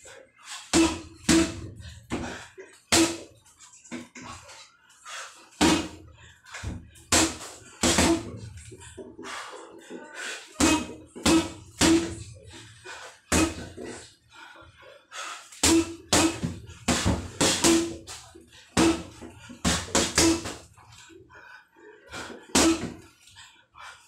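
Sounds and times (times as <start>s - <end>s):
gloves punching heavy bag: 0.7s - 3.3s, 5.6s - 6.0s, 7.1s - 8.4s, 10.6s - 12.3s, 13.3s - 13.9s, 15.6s - 20.7s, 22.5s - 23.0s.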